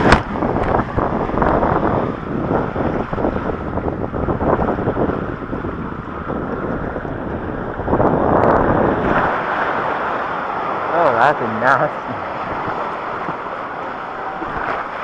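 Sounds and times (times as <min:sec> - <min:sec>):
water rushing and splashing: 0:00.0 - 0:15.0
wind buffeting microphone: 0:00.0 - 0:15.0.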